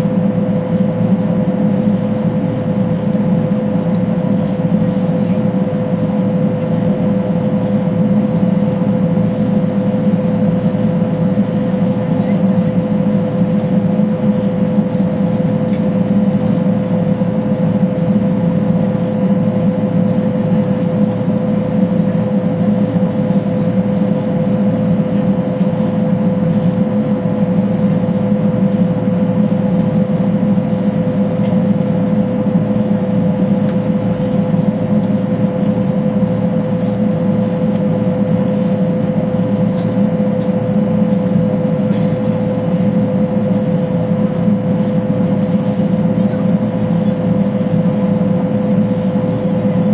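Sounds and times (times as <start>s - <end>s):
mid-pitched whine: 0.0s - 49.9s
turbine engine drone: 0.0s - 49.9s.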